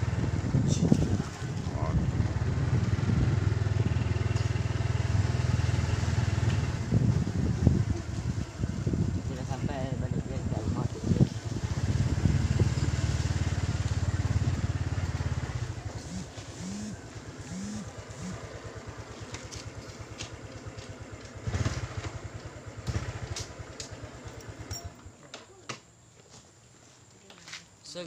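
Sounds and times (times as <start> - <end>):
motorcycle engine running: 0.0 - 25.2.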